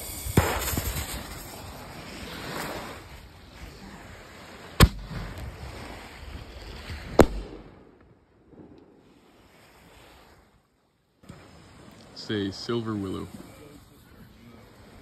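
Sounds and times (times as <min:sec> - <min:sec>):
hissing fuse: 0:00.0 - 0:02.8
firework bang: 0:00.0 - 0:03.0, 0:04.8 - 0:05.9, 0:06.8 - 0:09.5.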